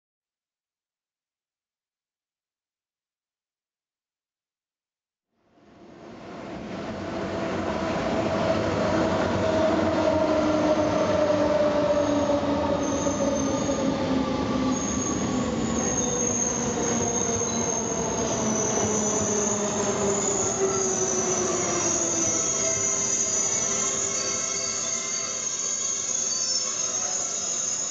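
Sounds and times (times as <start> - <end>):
wheel squeal: 14.7 - 27.9.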